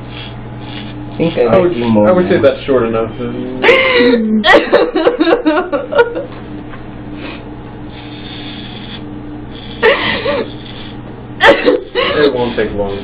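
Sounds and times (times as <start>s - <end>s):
electric hair clippers buzzing: 0.0s - 13.0s
woman crying: 3.6s - 6.3s, 9.8s - 10.6s, 11.4s - 12.3s.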